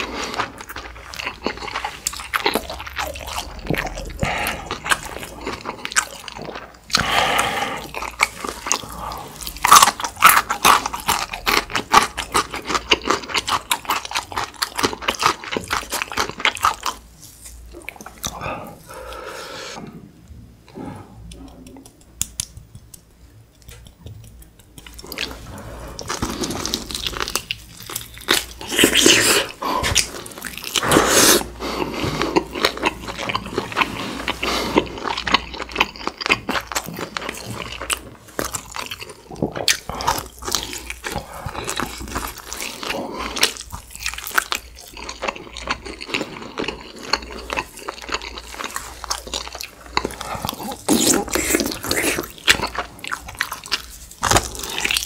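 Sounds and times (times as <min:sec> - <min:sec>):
person chewing food: 0:00.0 - 0:55.0
lip-smacking: 0:21.2 - 0:37.2, 0:48.3 - 0:55.0.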